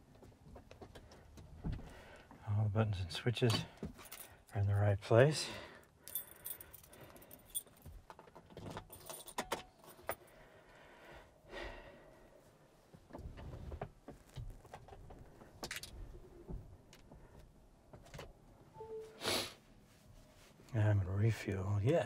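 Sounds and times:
keys jangling: 6.0s - 10.2s
handling clicks and knocks: 6.1s - 10.2s.

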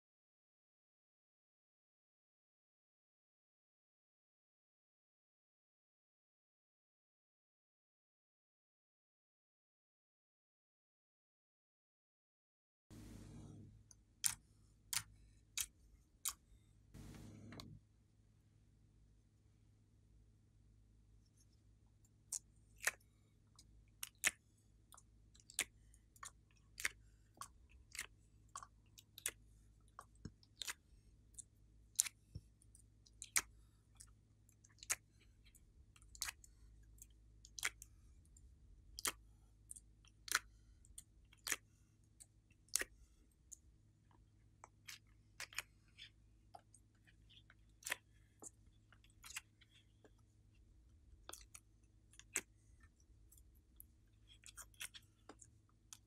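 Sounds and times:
jelly cubes clicking and tapping: 22.1s - 56.0s.

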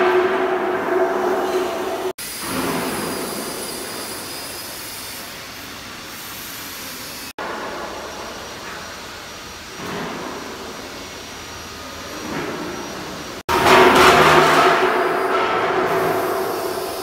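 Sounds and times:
high-pitched whine: 0.0s - 9.6s.

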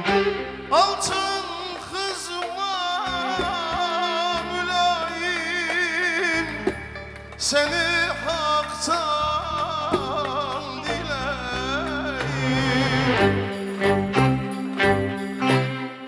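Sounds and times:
violins: 0.0s - 16.0s
man singing folk song: 0.7s - 6.7s, 7.4s - 13.3s
drum: 3.3s - 4.5s.

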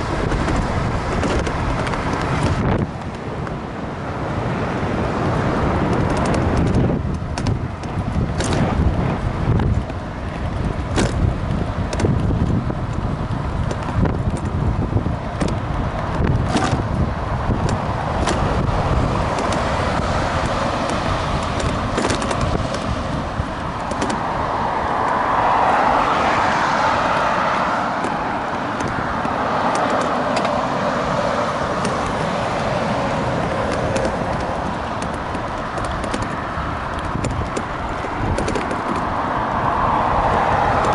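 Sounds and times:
electric scooter rumbling: 0.0s - 40.9s
highway traffic: 0.0s - 40.9s
vehicle passing: 14.5s - 40.9s.

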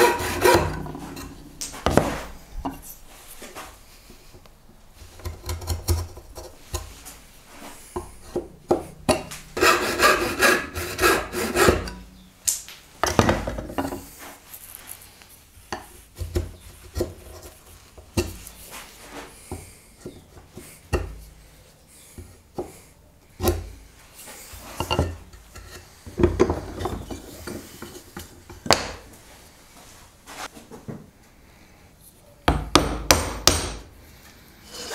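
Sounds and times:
chisel paring and scraping wood: 0.0s - 2.9s, 5.2s - 7.2s, 8.0s - 12.1s, 24.5s - 29.0s.

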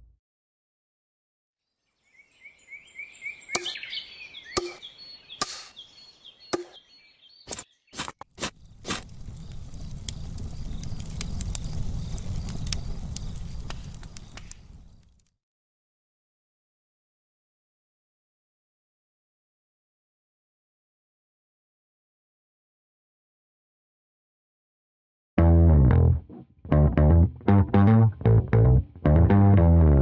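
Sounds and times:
bird-like chirps: 1.7s - 15.1s
chopping knocks: 3.6s - 3.8s, 4.6s - 4.8s, 5.4s - 5.7s, 6.5s - 6.8s
low crackling rumble: 8.5s - 15.3s.

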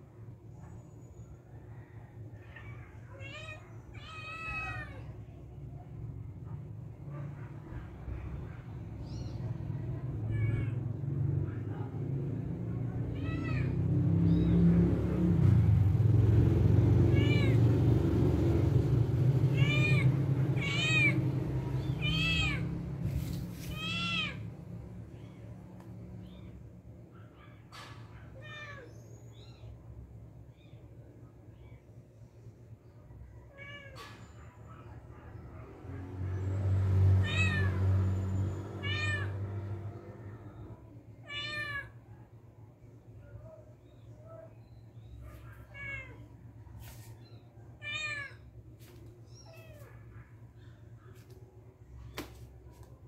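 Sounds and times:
cat mewing: 2.5s - 5.2s, 12.8s - 14.8s, 16.8s - 18.1s, 19.3s - 24.6s, 37.2s - 37.8s, 38.7s - 39.5s, 41.2s - 42.0s, 45.3s - 46.4s, 47.6s - 48.5s
kitten mewing: 19.4s - 22.9s, 23.7s - 24.4s.

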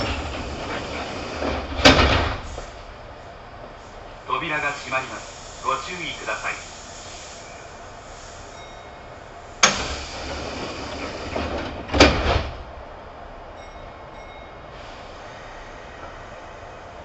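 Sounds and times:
heavy door thud: 0.0s - 2.8s, 9.6s - 12.7s
train door clunk: 0.0s - 3.0s, 9.1s - 12.8s
air hiss: 4.5s - 11.4s, 14.7s - 16.8s.

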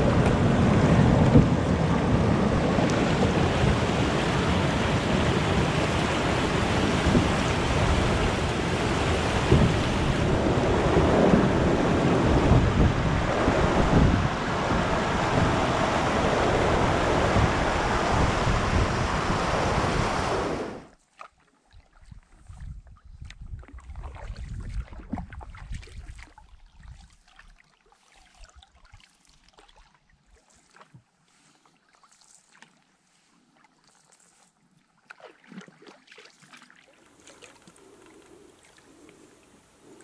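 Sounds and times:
water rushing over rocks: 0.0s - 20.9s.

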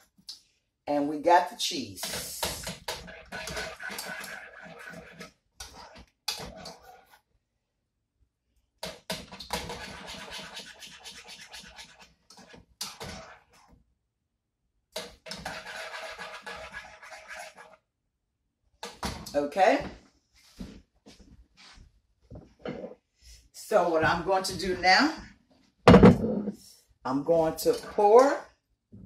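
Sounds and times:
whisk scraping saucepan: 2.0s - 7.3s, 9.1s - 13.7s, 15.0s - 17.8s.

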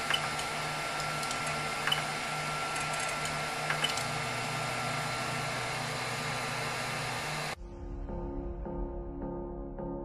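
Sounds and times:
cooling fans humming: 0.0s - 7.6s.

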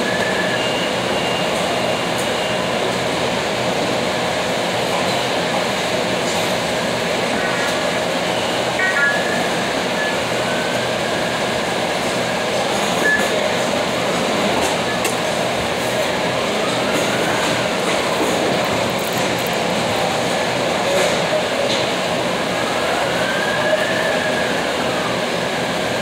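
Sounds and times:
machine running with rattle: 17.8s - 19.9s.

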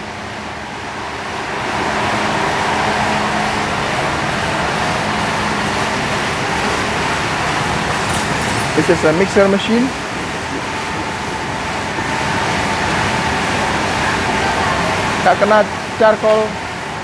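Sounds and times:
mixer machine humming and rumbling: 0.0s - 17.0s.

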